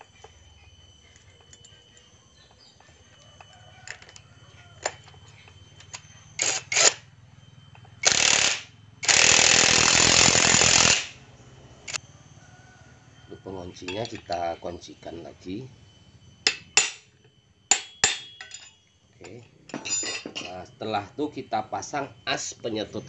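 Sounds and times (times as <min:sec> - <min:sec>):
metal parts clicking: 0:03.8 - 0:04.2
impact wrench: 0:06.4 - 0:07.0, 0:08.0 - 0:11.2.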